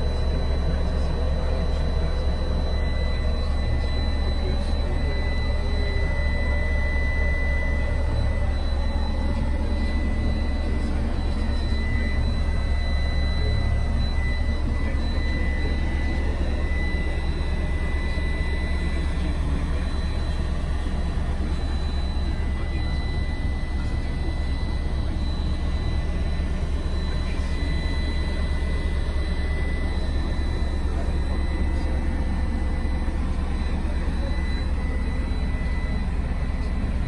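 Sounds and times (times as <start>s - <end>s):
diesel engine idling: 0.0s - 37.0s
high-pitched whine: 0.0s - 37.0s.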